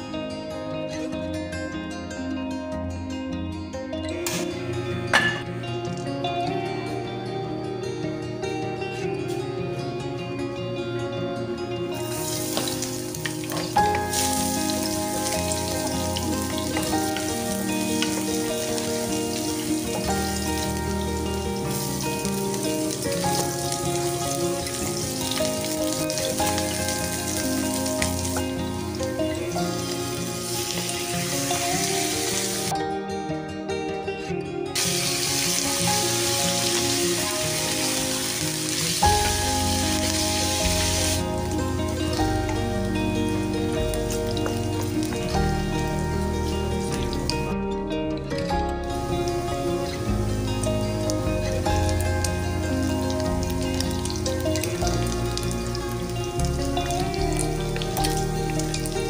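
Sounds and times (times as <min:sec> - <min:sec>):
background music with bass: 0:00.0 - 0:59.0
garlic sizzling in hot oil: 0:11.9 - 0:32.7, 0:34.8 - 0:47.5, 0:48.8 - 0:59.0.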